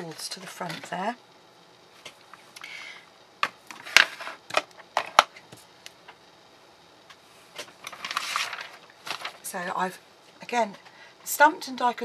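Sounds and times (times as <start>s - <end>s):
papery rustle: 7.6s - 9.5s.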